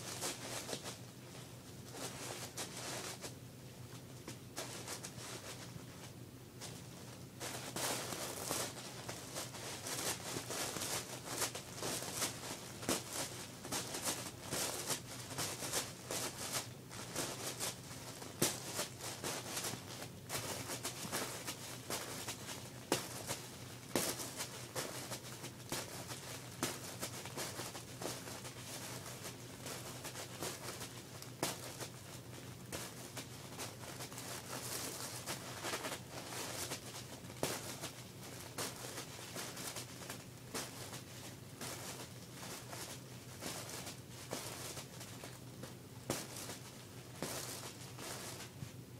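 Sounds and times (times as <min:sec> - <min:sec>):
tissue paper crinkling and tearing: 0:07.5 - 0:45.4.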